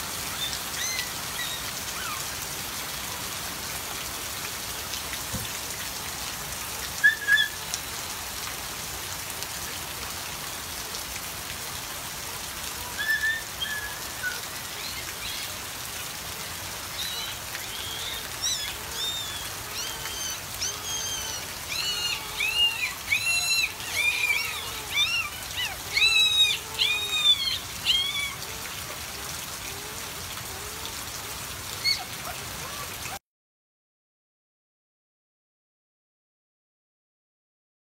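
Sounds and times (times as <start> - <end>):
rain falling: 0.0 - 33.2
puppies whining cries: 17.0 - 29.1, 31.7 - 33.2.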